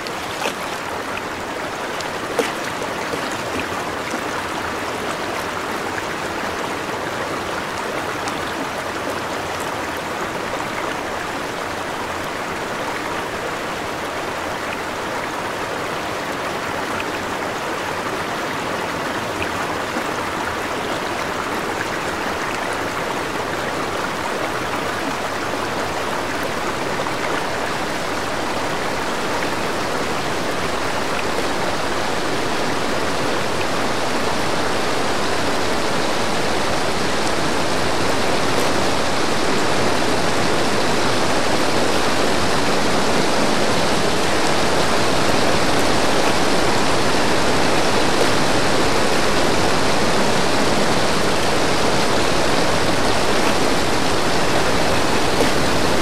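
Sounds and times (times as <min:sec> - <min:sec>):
small waterfall rushing: 0:00.0 - 0:56.0.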